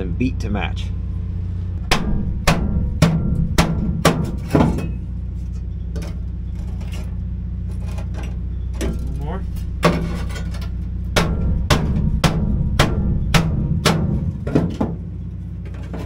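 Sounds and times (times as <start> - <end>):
steady low hum: 0.0 - 16.0
mallet blows on sheet metal: 1.8 - 4.8, 11.2 - 14.6.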